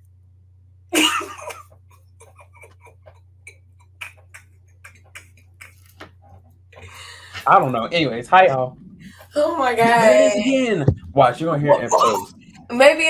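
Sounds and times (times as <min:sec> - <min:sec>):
low electrical hum: 0:00.0 - 0:13.0
person laughing: 0:01.0 - 0:06.0, 0:09.8 - 0:10.6, 0:11.7 - 0:12.3
stifled giggles: 0:01.0 - 0:06.0, 0:11.7 - 0:12.6.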